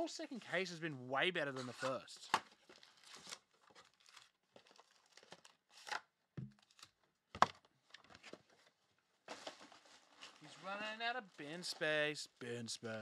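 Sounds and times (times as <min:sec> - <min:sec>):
foil wrappers crinkling and tearing: 0:01.7 - 0:06.0.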